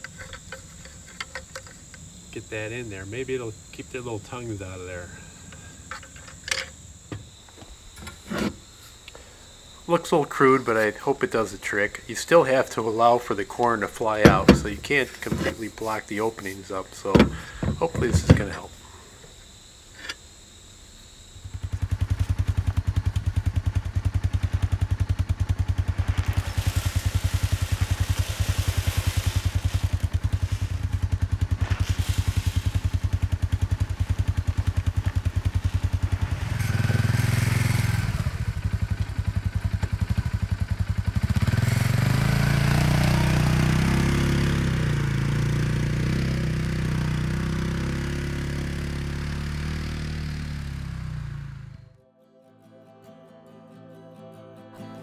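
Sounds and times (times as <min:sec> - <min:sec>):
utility vehicle engine idling: 0:00.0 - 0:19.4, 0:21.0 - 0:52.0
vehicle driving off: 0:11.4 - 0:18.7, 0:21.7 - 0:52.0.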